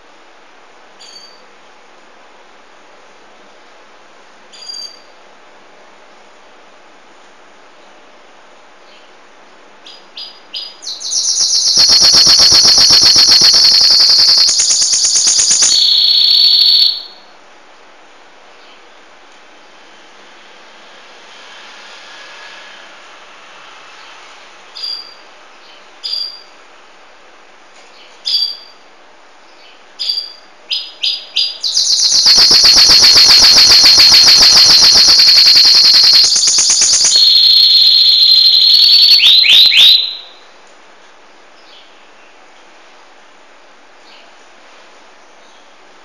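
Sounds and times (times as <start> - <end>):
canary singing: 9.8 - 17.3, 24.8 - 26.5, 28.2 - 28.8, 29.6 - 40.4.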